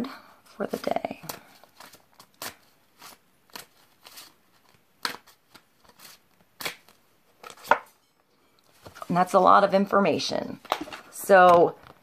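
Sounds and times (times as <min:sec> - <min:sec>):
cards being shuffled: 0:00.7 - 0:07.9.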